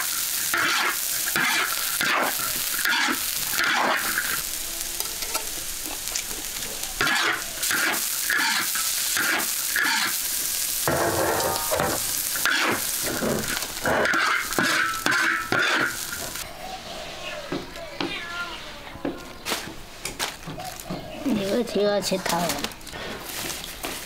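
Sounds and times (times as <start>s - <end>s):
spatula scraping a wok: 0.0s - 16.4s
food sizzling: 0.0s - 16.5s.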